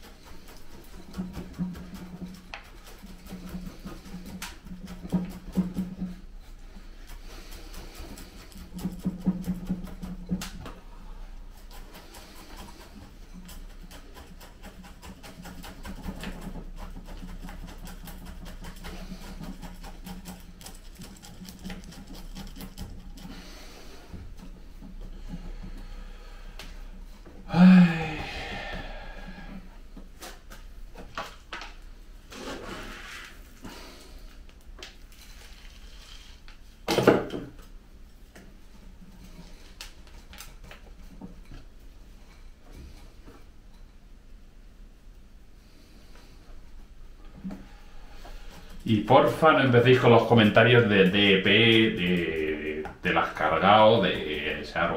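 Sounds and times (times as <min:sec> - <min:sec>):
steady low hum: 0:00.0 - 0:36.8, 0:37.6 - 0:54.9
scratching and crackling of soil and roots: 0:11.4 - 0:24.8, 0:32.3 - 0:36.8, 0:48.3 - 0:54.9.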